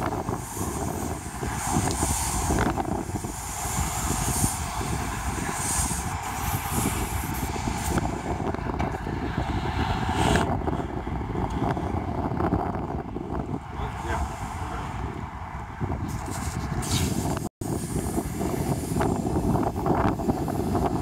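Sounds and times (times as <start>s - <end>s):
paint sprayer droning and hissing: 0.0s - 8.4s, 16.4s - 21.0s.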